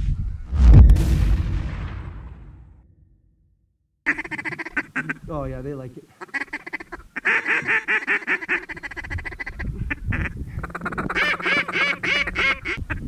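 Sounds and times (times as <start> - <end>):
mallards quacking: 4.1 - 13.0.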